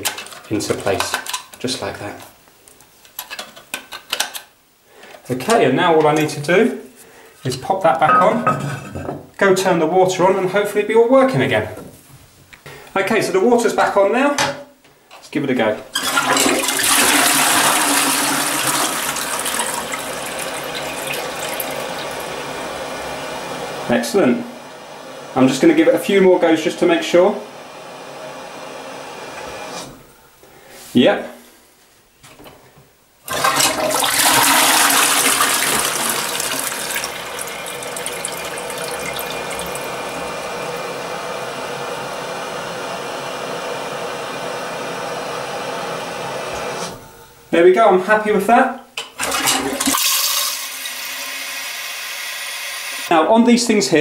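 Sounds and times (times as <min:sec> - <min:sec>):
toilet flushing: 0:15.9 - 0:30.0, 0:33.2 - 0:47.1, 0:49.0 - 0:53.1.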